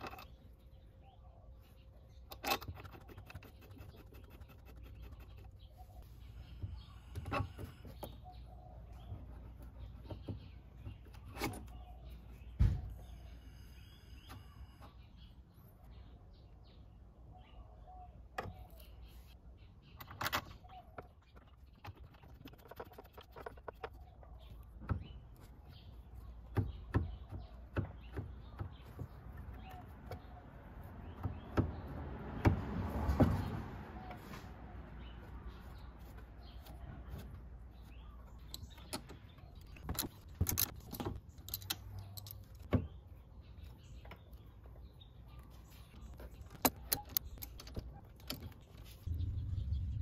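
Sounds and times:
rustling and scraping: 0:45.5 - 0:50.0.

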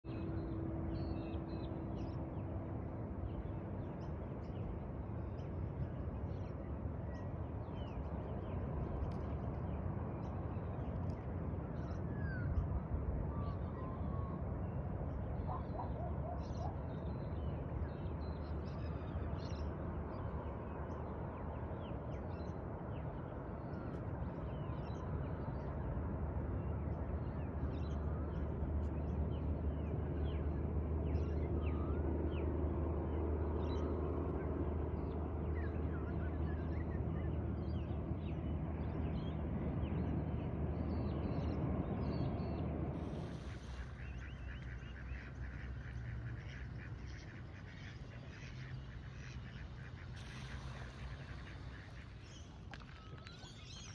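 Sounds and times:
steady low rumble: 0:00.1 - 0:53.9.

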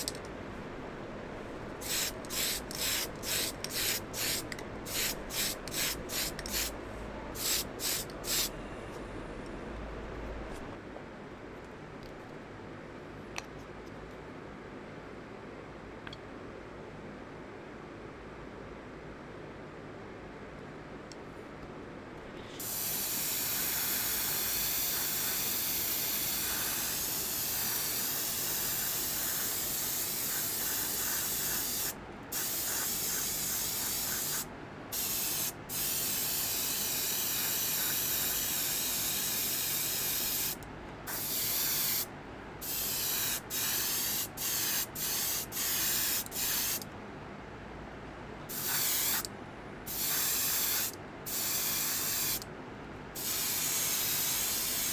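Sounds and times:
airbrush spraying paint: 0:01.8 - 0:06.8, 0:07.4 - 0:08.5, 0:22.5 - 0:46.8, 0:48.5 - 0:49.3, 0:49.9 - 0:52.4, 0:53.2 - 0:54.9.

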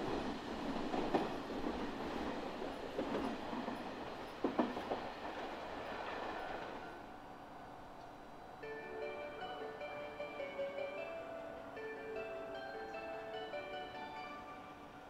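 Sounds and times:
train wheels clattering over rail joints: 0:00.1 - 0:06.7.

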